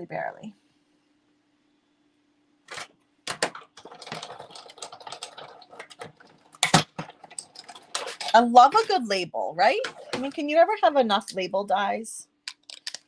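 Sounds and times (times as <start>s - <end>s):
paper pieces clicking and rustling: 2.7s - 9.0s, 12.5s - 13.0s.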